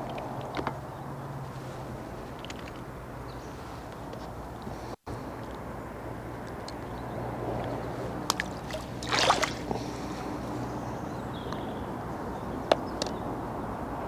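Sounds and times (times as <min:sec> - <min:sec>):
water splash: 0:08.3 - 0:09.8.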